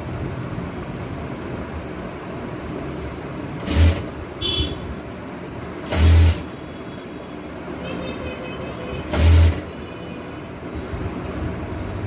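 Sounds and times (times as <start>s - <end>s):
sewing machine stitching: 3.6s - 4.1s, 5.9s - 6.5s, 9.1s - 9.7s.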